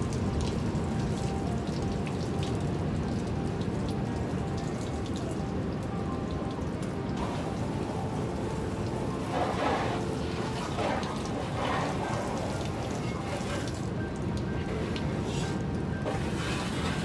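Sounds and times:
drips on wet pavement and vehicle: 0:00.0 - 0:17.0
water splattering: 0:07.1 - 0:17.0.

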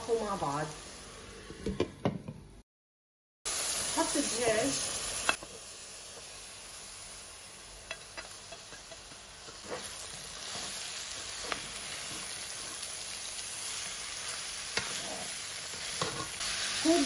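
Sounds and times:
chicken sizzling in oil: 0:03.5 - 0:17.0.

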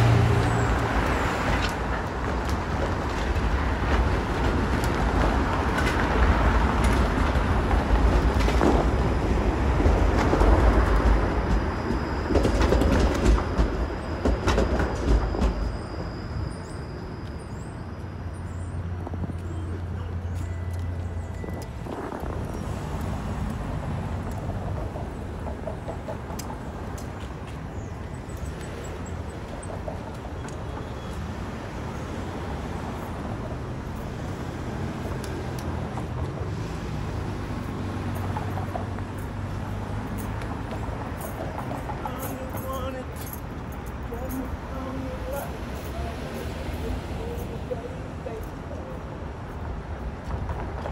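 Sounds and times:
cars driving past: 0:00.0 - 0:14.1, 0:16.1 - 0:50.9
streetcar rumble and wheel clatter: 0:00.0 - 0:50.9.

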